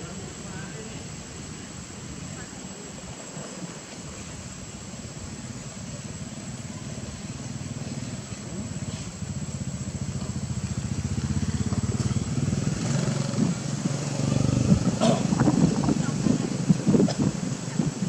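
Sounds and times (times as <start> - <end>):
motor engine humming: 6.0 - 18.0.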